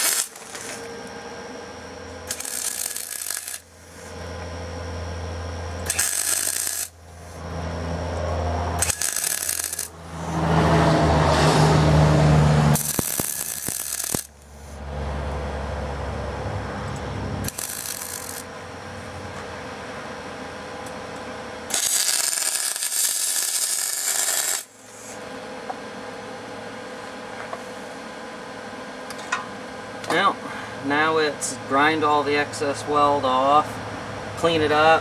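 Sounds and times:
welder arc crackling: 0:00.0 - 0:00.9, 0:02.2 - 0:04.2, 0:05.8 - 0:07.4, 0:08.1 - 0:10.7, 0:11.6 - 0:14.8, 0:16.9 - 0:18.7, 0:21.7 - 0:25.1.

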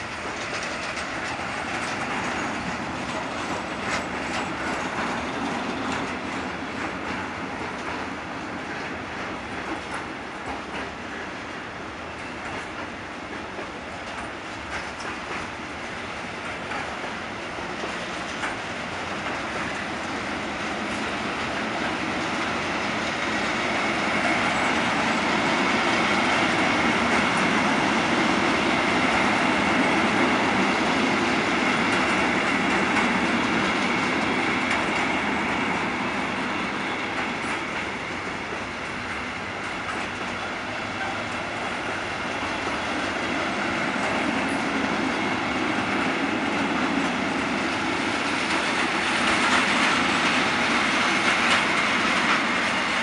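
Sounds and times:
freight train wheels rumbling on rail: 0:00.0 - 0:53.0.

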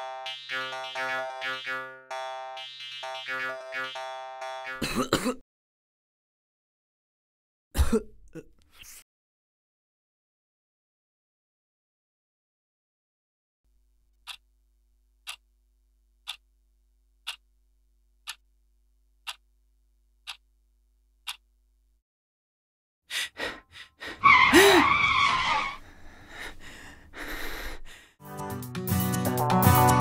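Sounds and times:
clock ticking: 0:14.2 - 0:14.5, 0:15.2 - 0:15.4, 0:16.2 - 0:16.5, 0:17.2 - 0:17.5, 0:18.2 - 0:18.5, 0:19.2 - 0:19.5, 0:20.2 - 0:20.5, 0:21.2 - 0:21.5.

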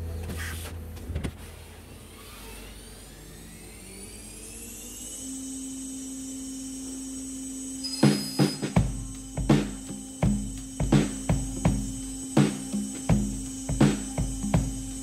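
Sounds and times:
machine spindle whine: 0:00.0 - 0:15.0
coolant hissing: 0:06.8 - 0:15.0.

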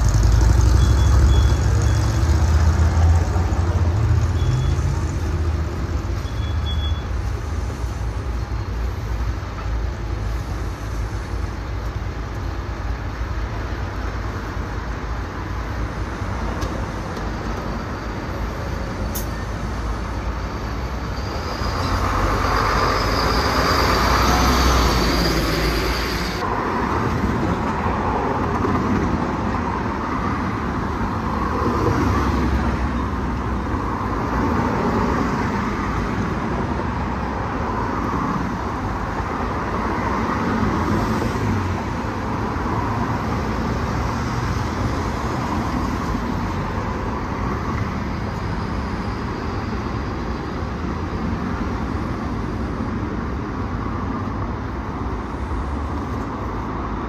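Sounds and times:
bus pulling away: 0:00.0 - 0:29.2
cars passing: 0:00.0 - 0:57.0
road traffic: 0:00.0 - 0:57.0.

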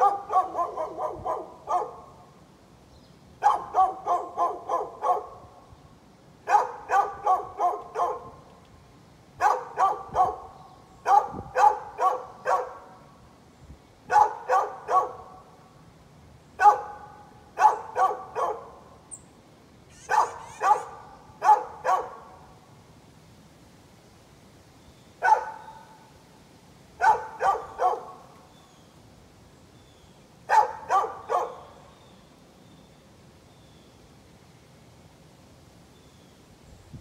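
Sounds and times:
dog barking: 0:00.0 - 0:02.1, 0:03.4 - 0:05.4, 0:06.5 - 0:08.4, 0:09.4 - 0:12.9, 0:14.1 - 0:15.4, 0:16.6 - 0:18.8, 0:20.0 - 0:22.4, 0:25.2 - 0:26.0, 0:27.0 - 0:28.2, 0:30.5 - 0:31.6.

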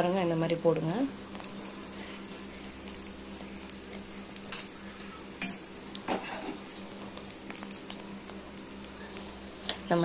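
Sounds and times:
oil sizzling on a pan: 0:00.0 - 0:10.0.

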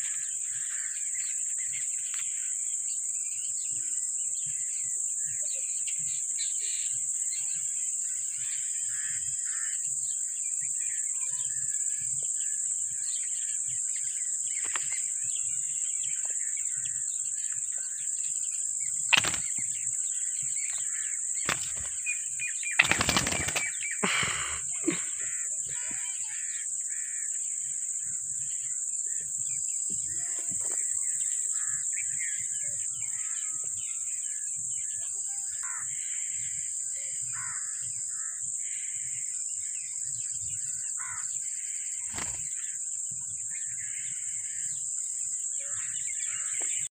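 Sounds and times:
soft bird chirps: 0:10.2 - 0:38.2
bird wings flapping: 0:19.1 - 0:19.6, 0:21.4 - 0:22.1, 0:22.7 - 0:24.0, 0:42.1 - 0:42.5
sharp click: 0:19.1 - 0:19.6.

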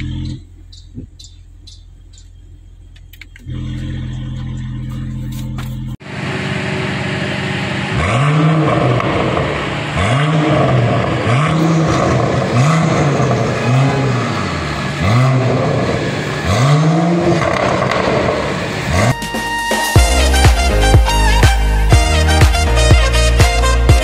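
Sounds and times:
car engine revving: 0:00.0 - 0:19.2
exhaust pops and crackles: 0:17.3 - 0:18.8.

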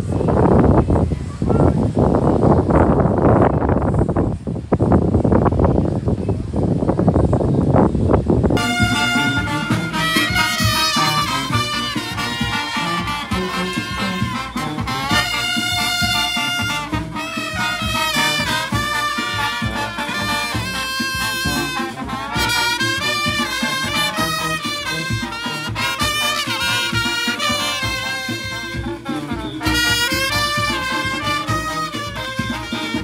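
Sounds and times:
brass horns melody: 0:08.6 - 0:33.0
drums and percussion beat: 0:08.6 - 0:33.0.

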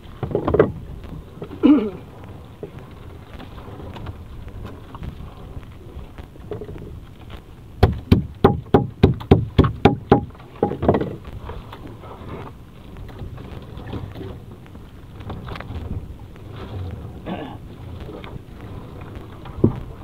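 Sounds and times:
low steady rumble: 0:00.0 - 0:20.0
sharp ringing knocks: 0:08.1 - 0:10.8.

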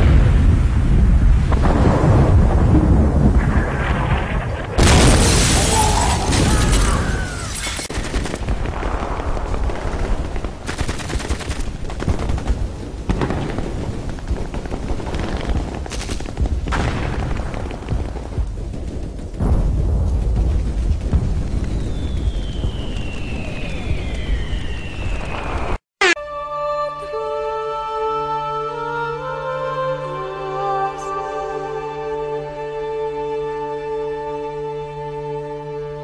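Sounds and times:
booming blasts: 0:00.0 - 0:10.8, 0:11.6 - 0:25.8
gunfire bursts: 0:07.8 - 0:17.5.

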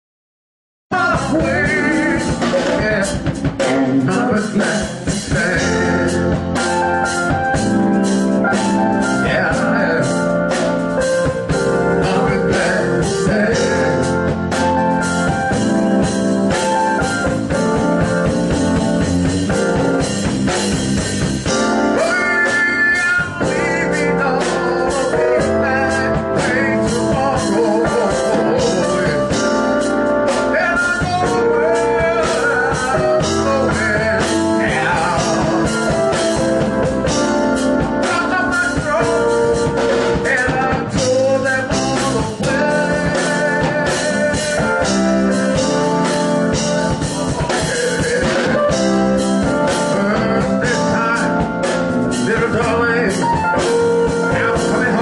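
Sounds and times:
band playing blues rock: 0:00.9 - 0:55.0.

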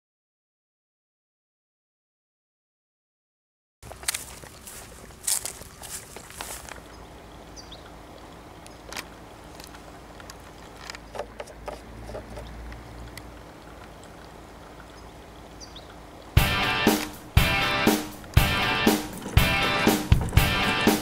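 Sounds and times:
hand handling clicks and knocks: 0:08.7 - 0:12.8, 0:18.1 - 0:21.0.

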